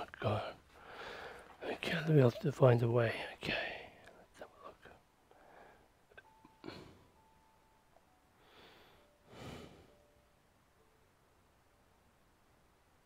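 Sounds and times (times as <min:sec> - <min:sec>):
man breathing or sniffing: 0:00.7 - 0:01.6, 0:08.4 - 0:10.0.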